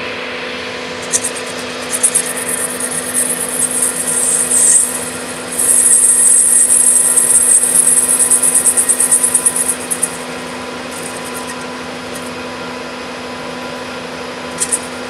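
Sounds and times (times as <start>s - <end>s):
lathe motor hum: 0.9s - 12.7s
high-pitched cutting hiss: 1.0s - 12.3s, 14.6s - 15.0s.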